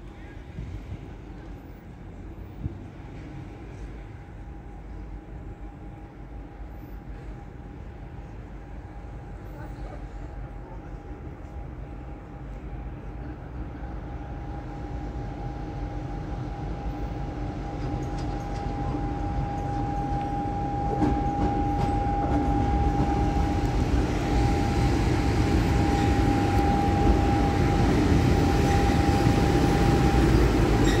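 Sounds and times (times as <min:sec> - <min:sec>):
diesel locomotive engine rumble: 0:00.0 - 0:31.0
steady high whine: 0:18.7 - 0:31.0.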